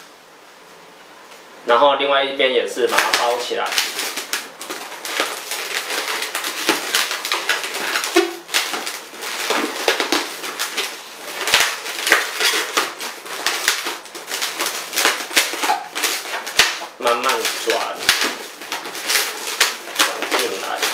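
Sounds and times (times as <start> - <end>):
balloon squeaking and rubbing: 2.8 - 20.9.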